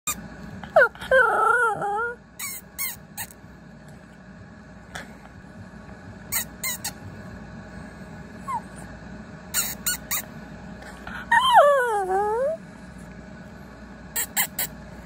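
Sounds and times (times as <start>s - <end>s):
dog whining howl: 0.6s - 2.6s, 8.4s - 8.8s, 11.1s - 12.6s.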